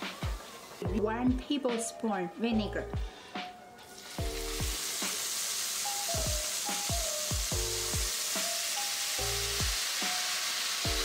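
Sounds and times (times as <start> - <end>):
oil sizzling in a wok: 0.0 - 0.9, 3.9 - 11.0
background music with bass line: 0.0 - 5.2, 6.1 - 8.6, 9.2 - 9.8.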